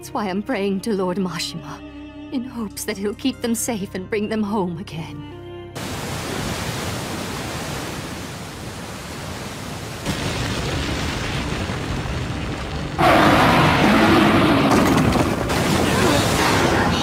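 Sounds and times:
rushing water: 5.8s - 10.6s, 15.4s - 17.0s.

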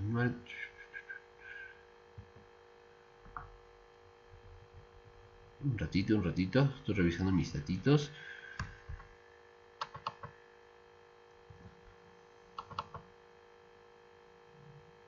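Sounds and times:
steady low hum: 0.0s - 15.0s
computer mouse clicks: 9.8s - 10.3s, 12.6s - 13.1s.

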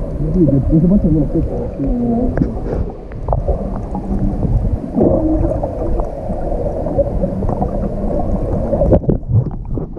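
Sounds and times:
faint humming tones: 0.0s - 8.9s
muffled underwater rumble: 0.0s - 9.9s.

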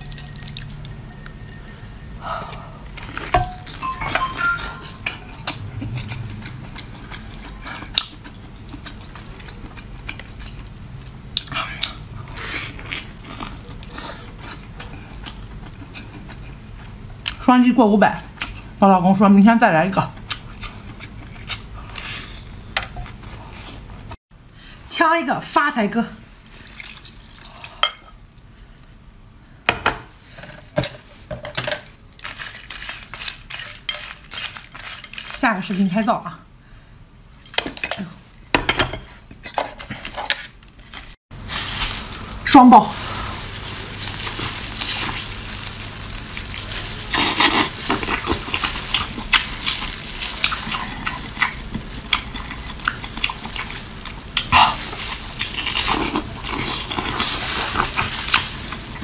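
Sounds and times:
wet chewing and squelching: 4.8s - 17.4s, 43.2s - 59.0s.

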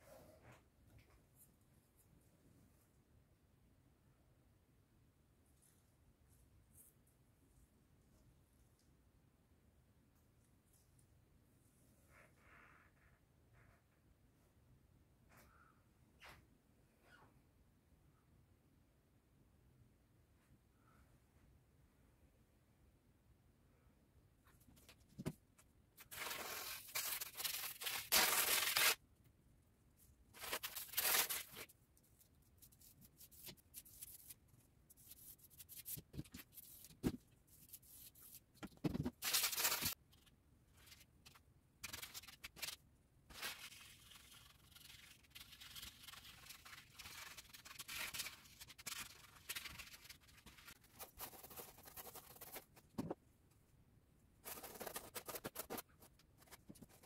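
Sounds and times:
paintbrush scrubbing canvas: 43.3s - 52.9s, 54.4s - 57.0s.

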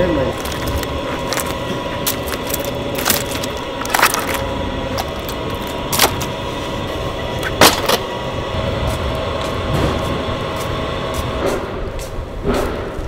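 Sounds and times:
hand truck rolling on concrete: 0.0s - 13.0s
wooden crates rattling: 0.3s - 6.3s.

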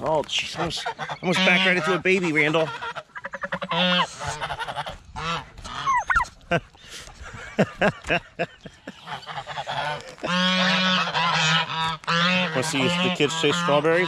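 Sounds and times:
geese honking: 0.3s - 6.3s, 8.8s - 14.0s.

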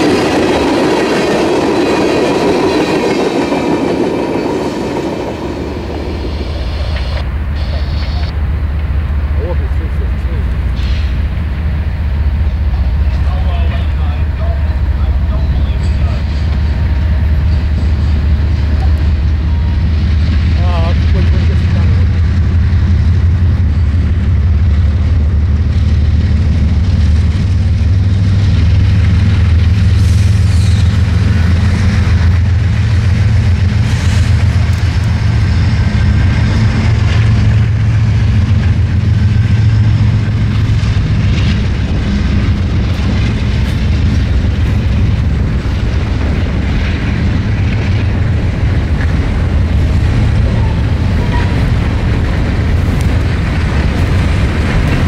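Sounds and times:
freight train rumbling past: 0.0s - 55.0s
train wheel squeals: 15.0s - 19.9s, 29.9s - 31.8s.

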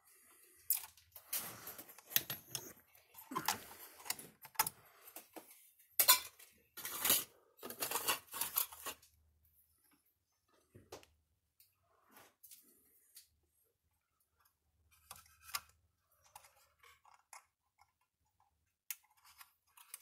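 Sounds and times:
clicks and clatter of handling parts: 0.6s - 9.2s, 14.9s - 20.0s.

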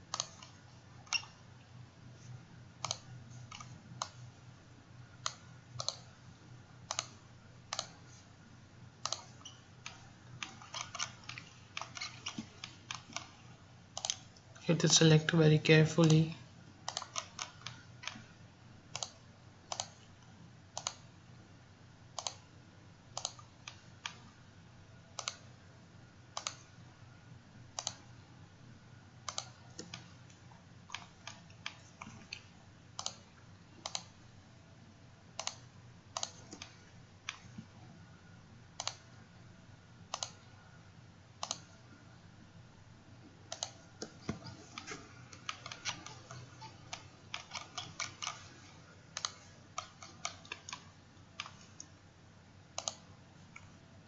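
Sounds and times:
computer mouse clicking: 0.0s - 1.4s, 2.8s - 4.2s, 5.2s - 6.1s, 6.8s - 8.2s, 9.0s - 15.0s, 16.8s - 18.3s, 18.9s - 21.1s, 22.1s - 22.5s, 23.1s - 24.3s, 25.1s - 25.5s, 26.4s - 26.7s, 27.7s - 28.1s, 29.2s - 34.2s, 35.3s - 37.7s, 38.8s - 39.1s, 40.1s - 40.4s, 41.4s - 41.7s, 43.5s - 52.0s, 52.7s - 53.8s
faint low hum: 0.0s - 54.0s.

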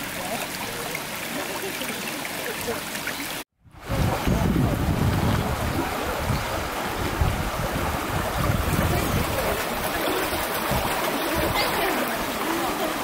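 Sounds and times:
water rushing through channel: 0.0s - 13.0s
wind buffeting microphone: 3.6s - 12.9s.

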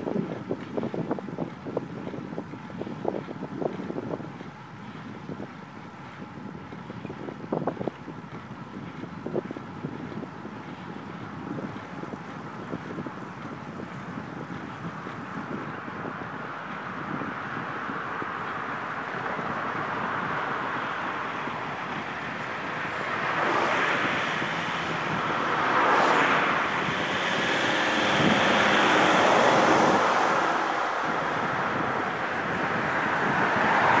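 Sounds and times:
wind rushing over microphone: 0.0s - 34.0s
cars passing: 14.4s - 34.0s.

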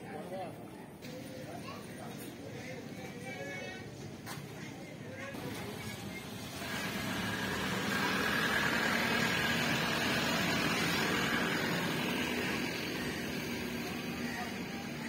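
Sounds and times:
background noise: 0.0s - 6.2s
engine hum: 5.4s - 15.0s.

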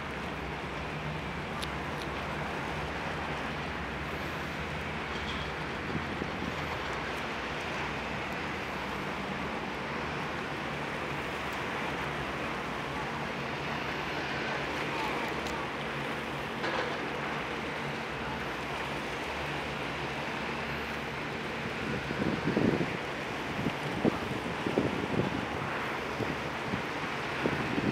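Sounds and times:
ferry engines humming: 0.0s - 27.9s
hiss of boat wash: 1.7s - 5.0s.

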